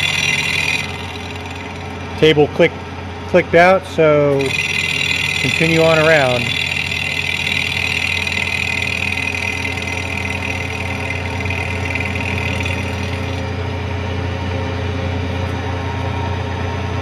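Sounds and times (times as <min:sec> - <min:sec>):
high-pitched metal cutting noise: 0:00.0 - 0:02.8, 0:04.3 - 0:13.7
milling machine motor hum: 0:00.0 - 0:16.2.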